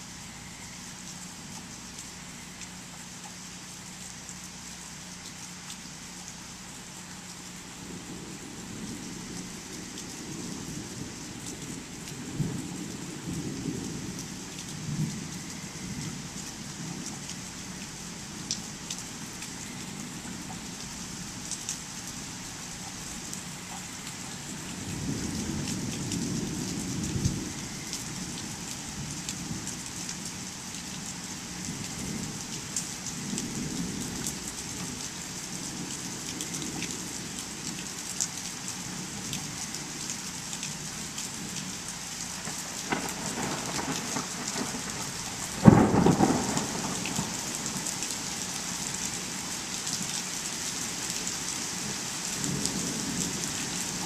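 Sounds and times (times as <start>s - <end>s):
steady rain: 0.0s - 54.0s
thunder rumbling: 42.4s - 48.3s
sharp thunderclap: 42.9s - 45.0s, 45.6s - 47.3s.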